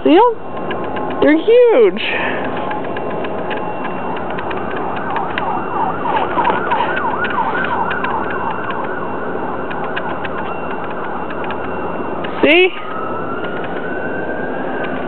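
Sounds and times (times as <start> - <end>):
rushing outdoor noise: 0.0 - 15.0
scattered clicks: 0.5 - 1.5, 2.4 - 9.0, 9.6 - 13.9
distant siren yelping: 2.6 - 15.0.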